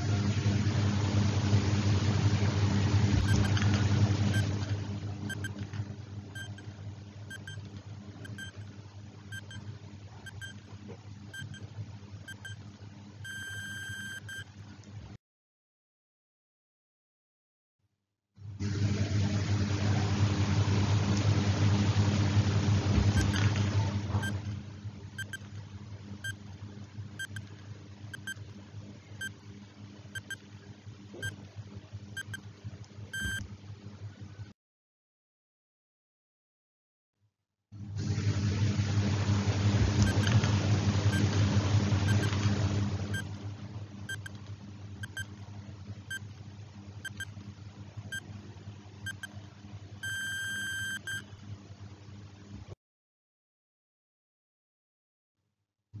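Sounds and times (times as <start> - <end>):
steady low hum: 0.0 - 15.2, 18.4 - 34.5, 37.8 - 52.7
countdown timer beeps: 7.3 - 7.6, 8.3 - 8.6, 9.4 - 9.6, 10.3 - 10.6, 12.3 - 12.6, 13.3 - 14.4, 27.2 - 27.5, 28.2 - 28.4, 33.2 - 33.4, 49.1 - 49.3, 50.0 - 51.2.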